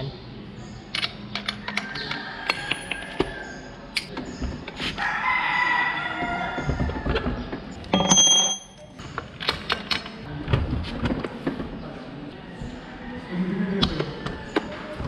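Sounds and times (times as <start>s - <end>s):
rooster crowing: 5.0s - 7.1s
socket wrench clinking: 7.8s - 10.2s.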